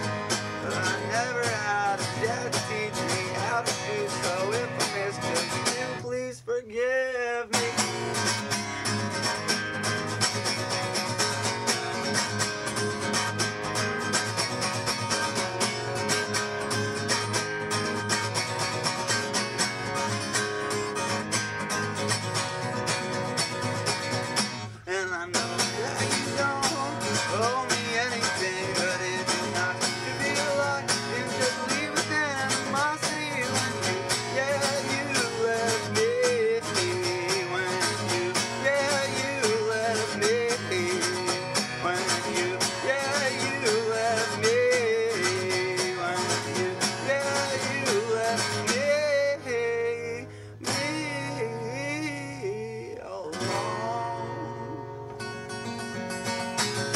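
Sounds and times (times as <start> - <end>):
man singing: 0.0 - 9.4, 24.6 - 55.1
acoustic guitar strumming: 0.0 - 56.9.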